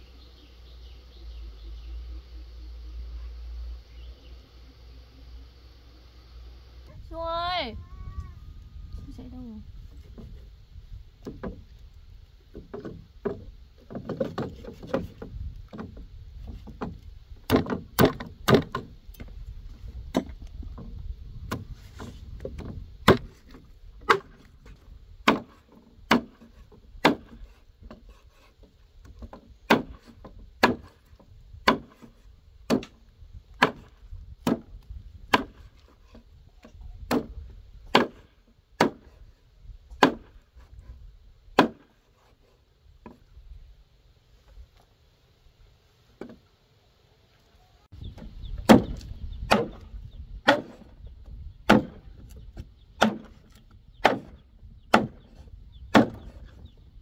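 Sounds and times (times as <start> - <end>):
cleaver chopping meat on wood: 25.2 - 26.4, 27.0 - 27.4, 29.7 - 30.9, 31.6 - 32.1, 32.7 - 33.0, 33.6 - 34.7, 35.3 - 35.6, 37.1 - 39.1, 40.0 - 40.3, 41.6 - 41.8, 48.6 - 49.8, 50.4 - 50.8, 51.7 - 52.0, 53.0 - 53.4, 54.0 - 55.3, 55.9 - 56.4
cutting and scraping: 25.4 - 31.1, 41.6 - 42.7.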